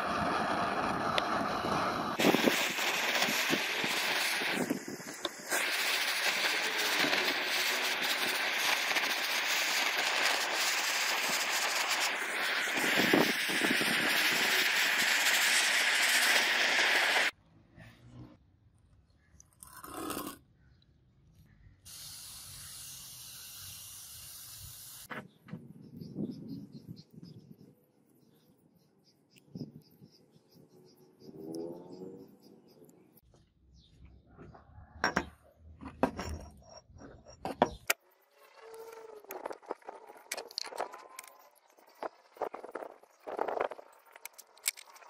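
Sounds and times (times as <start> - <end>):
hand sprayer hissing mist: 0.0 - 17.3, 21.9 - 25.1.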